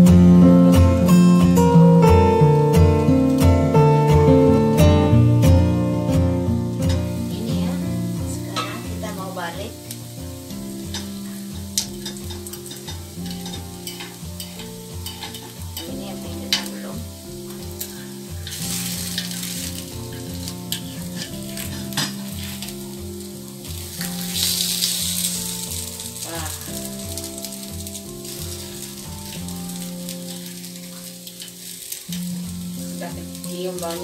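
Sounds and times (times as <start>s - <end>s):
batter sizzling in metal pan: 0.0s - 34.0s
soft background music: 0.0s - 34.0s
metal spoon clicking on pan: 11.8s - 15.9s.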